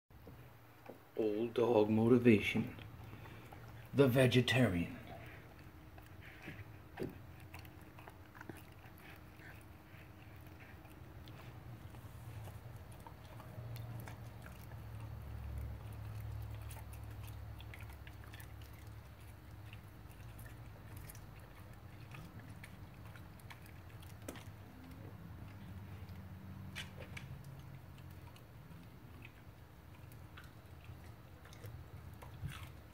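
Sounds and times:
dog chewing crunchy vegetables: 0.3 - 32.9.

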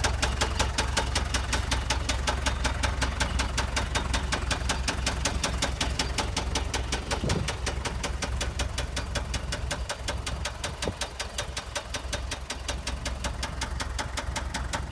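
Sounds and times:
diesel engine idling: 0.0 - 14.9.

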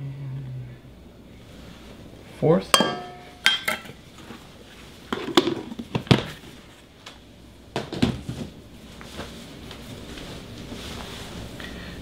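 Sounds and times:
kitchen items knocking: 2.8 - 3.9.

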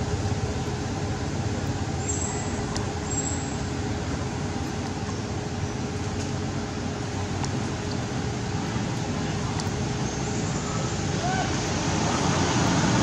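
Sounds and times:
low outdoor rumble: 0.0 - 13.0.

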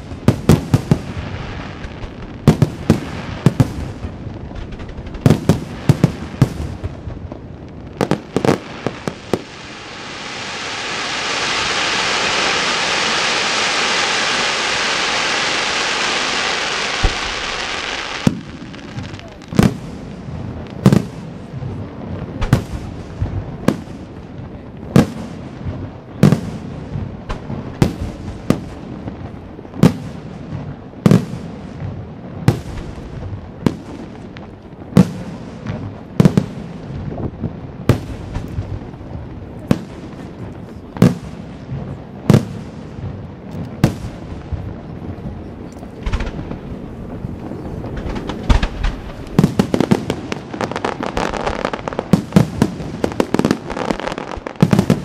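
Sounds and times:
firework shells bursting: 11.7 - 19.8, 45.8 - 55.0.

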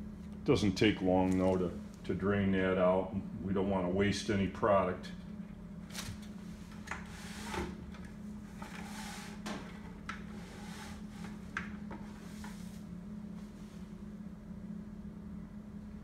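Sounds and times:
brushing sounds: 8.6 - 9.4, 10.3 - 13.9.

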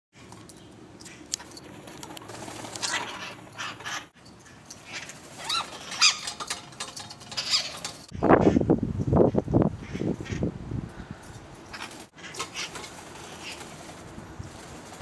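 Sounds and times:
parakeets screeching: 1.1 - 8.6, 11.7 - 13.8.

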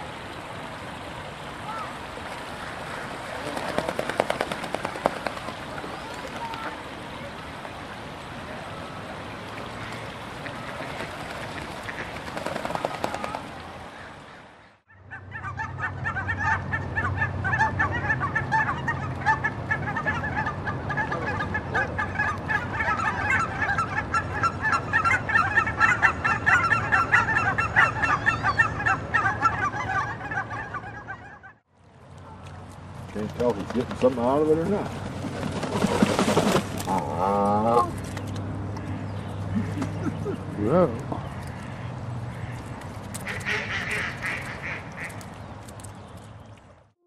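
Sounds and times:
geese honking: 9.7 - 31.6, 41.4 - 45.2.

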